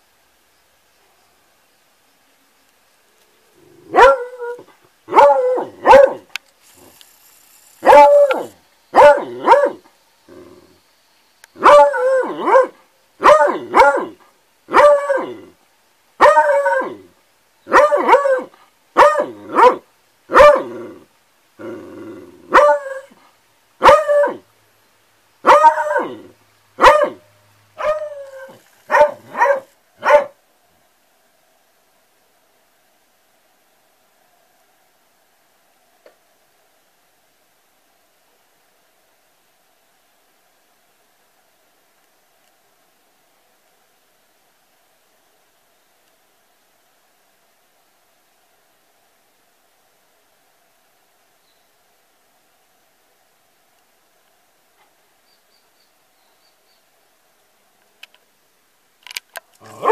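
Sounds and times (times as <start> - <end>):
dog howling: 3.9 - 6.2, 7.8 - 9.8, 11.6 - 15.5, 16.2 - 17.1, 17.7 - 20.7, 22.5 - 23.2, 23.8 - 24.4, 25.5 - 27.2, 27.8 - 30.3, 59.6 - 59.9.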